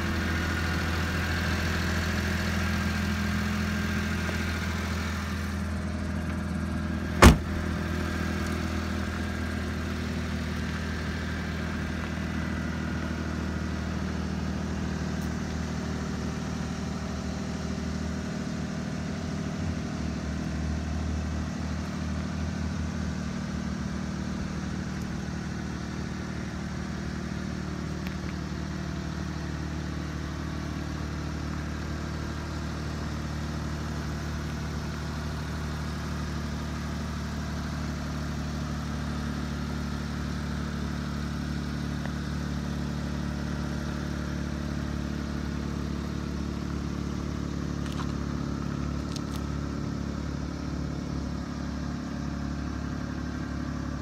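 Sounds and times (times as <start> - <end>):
truck engine idling: 0.0 - 54.0
sharp knock: 7.2 - 7.6.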